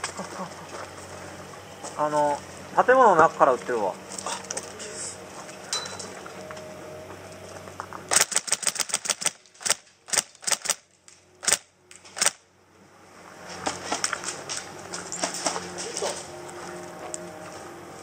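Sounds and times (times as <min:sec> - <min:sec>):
airsoft rifle full-auto burst: 0:08.1 - 0:10.8.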